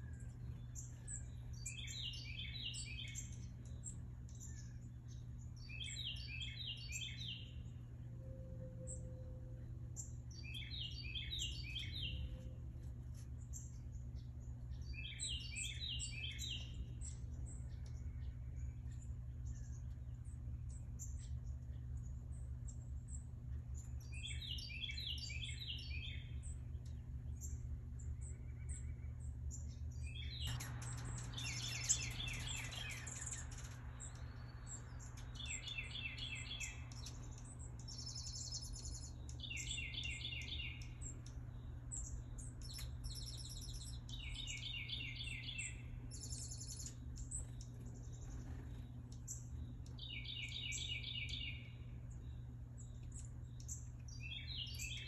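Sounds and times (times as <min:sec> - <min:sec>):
songbird trilling: 0:00.0 - 0:07.6, 0:10.0 - 0:12.4, 0:28.2 - 0:51.9
steady low hum: 0:00.0 - 0:55.0.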